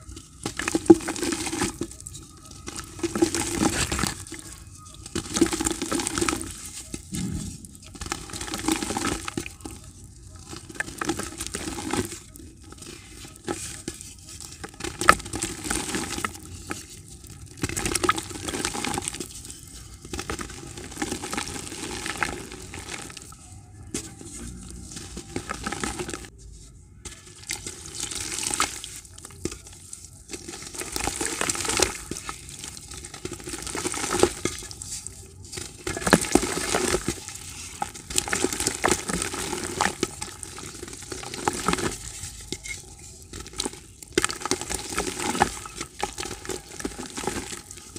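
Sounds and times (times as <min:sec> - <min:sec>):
fragments falling into bucket: 0:00.2 - 0:02.0, 0:02.6 - 0:04.4, 0:20.1 - 0:23.4, 0:24.0 - 0:26.3, 0:30.3 - 0:42.5, 0:43.3 - 0:47.9.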